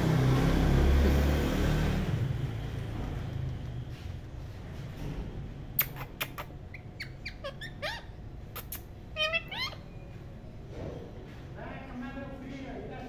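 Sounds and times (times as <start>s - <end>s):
parakeets squeaky chirps: 5.8s - 10.4s.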